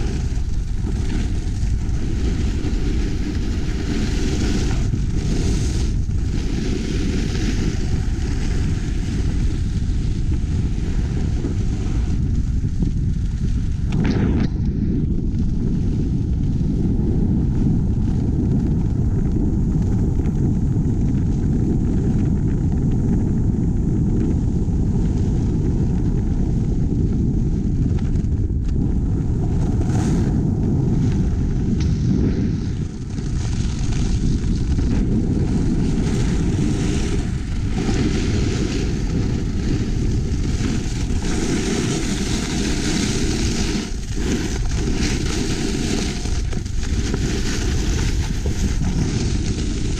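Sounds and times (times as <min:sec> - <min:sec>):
snowboard scraping over snow: 0:00.0 - 0:49.9
wind buffeting microphone: 0:00.0 - 0:49.9.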